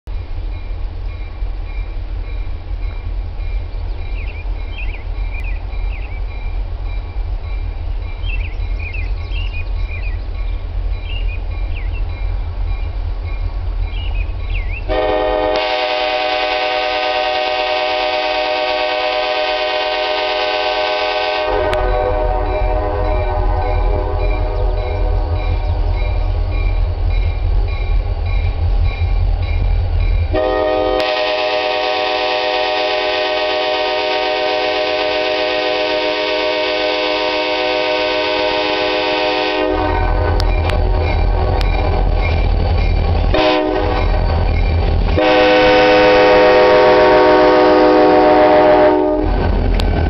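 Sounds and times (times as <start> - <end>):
locomotive engine rumbling: 0.1 - 50.0
birds chirping: 0.3 - 15.0, 21.8 - 30.3
locomotive horn blast: 14.9 - 25.4, 30.3 - 41.4, 43.3 - 44.2, 45.2 - 49.4.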